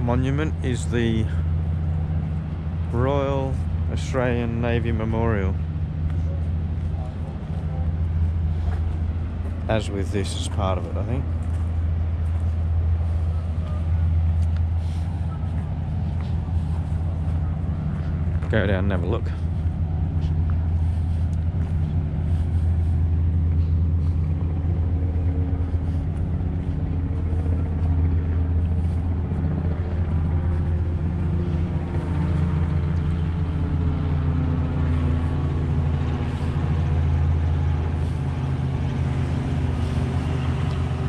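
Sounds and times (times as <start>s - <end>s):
low mechanical hum: 0.0s - 41.0s.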